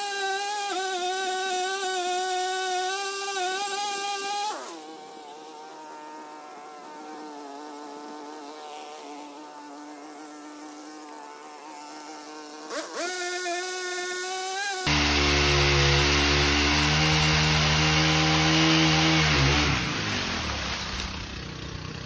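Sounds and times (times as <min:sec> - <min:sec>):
pole pruner motor running: 0:00.0 - 0:05.6, 0:12.0 - 0:22.0.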